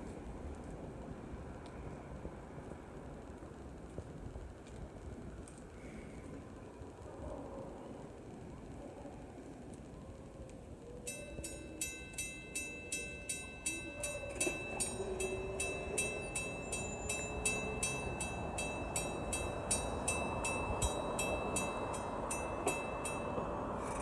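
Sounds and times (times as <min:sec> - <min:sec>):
train rumbling: 0:00.0 - 0:24.0
railroad crossing bell ringing: 0:11.0 - 0:24.0.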